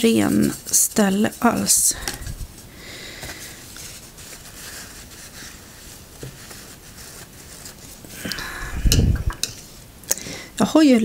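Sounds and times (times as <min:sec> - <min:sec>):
paper towel scrubbing palette: 0:00.0 - 0:08.2.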